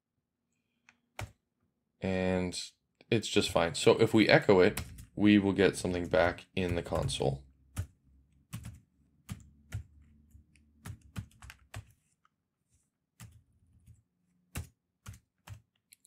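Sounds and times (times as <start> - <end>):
typing on a keyboard: 4.6 - 5.2, 6.6 - 12.0, 13.2 - 16.0.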